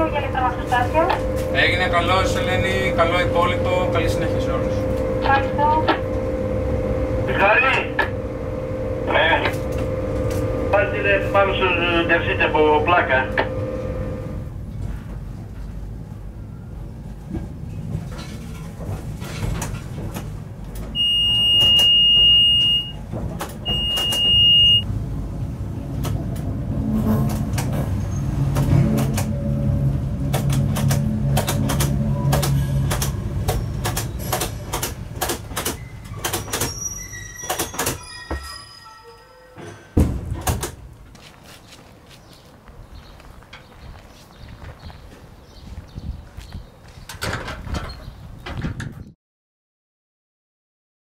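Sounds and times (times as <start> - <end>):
electric locomotive humming: 0.0 - 41.5
high warning beep: 21.0 - 23.0, 23.6 - 24.9
wheels clicking over rail joints: 26.0 - 38.1.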